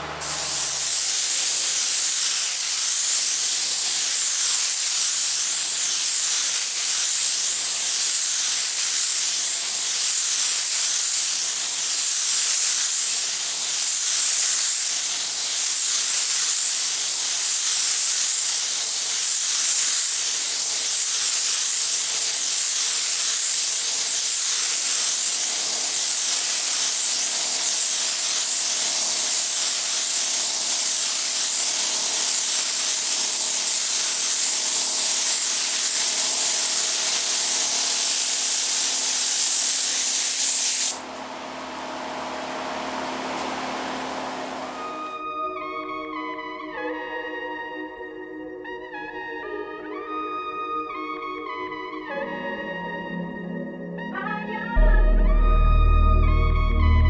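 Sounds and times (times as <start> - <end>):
spray gun hissing: 0.0 - 45.1.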